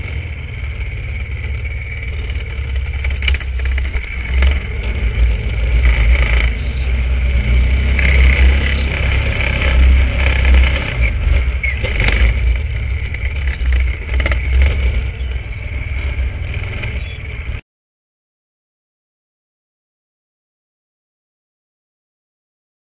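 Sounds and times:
snowmobile engine running: 0.0 - 17.6.

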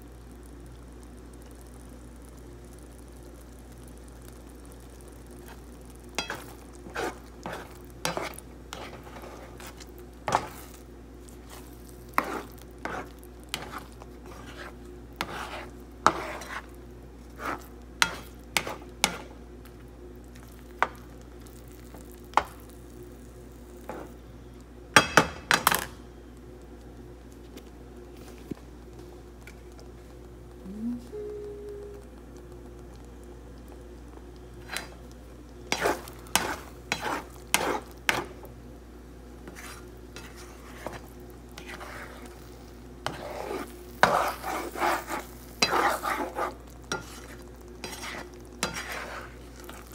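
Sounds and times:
steady low hum: 0.0 - 49.9
utensil scraping a frying pan: 6.2 - 10.8, 11.4 - 19.2, 35.7 - 38.3, 39.4 - 42.4, 43.0 - 49.9.

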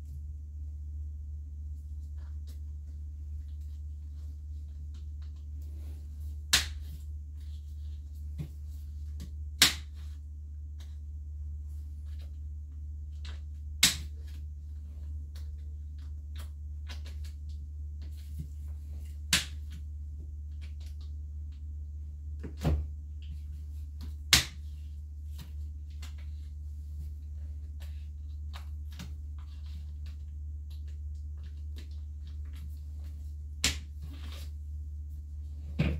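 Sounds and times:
steady low hum: 0.0 - 35.9.

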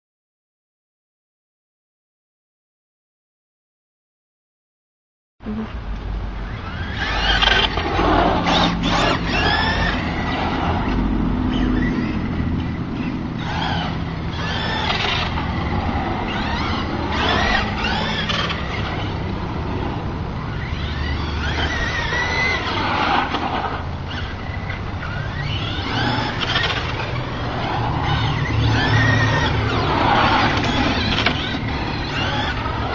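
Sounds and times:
rc truck motor whining: 6.3 - 32.9
steady low rumble: 9.8 - 21.4.

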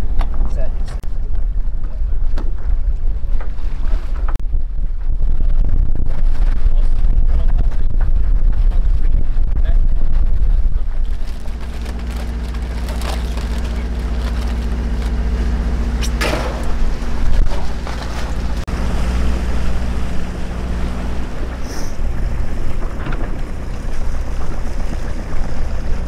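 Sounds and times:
wind on microphone: 0.0 - 26.0
boat engine droning: 10.4 - 26.0
water rushing past hull: 10.5 - 26.0
plastic bag crinkling: 11.0 - 15.2.

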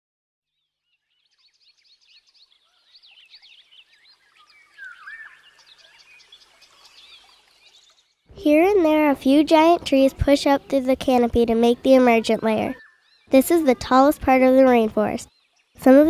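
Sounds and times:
birds chirping and whistling: 1.0 - 8.2, 11.2 - 15.9.

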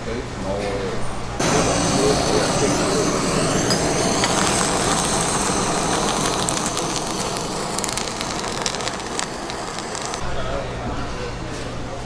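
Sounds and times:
blowtorch hissing: 1.4 - 10.2
fish crackling and popping: 3.8 - 10.2.

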